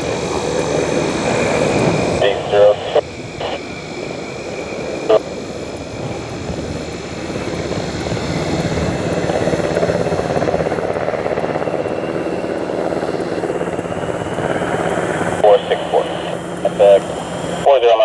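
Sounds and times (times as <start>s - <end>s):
jet engine noise: 0.0s - 18.0s
faint high whine: 1.3s - 6.3s.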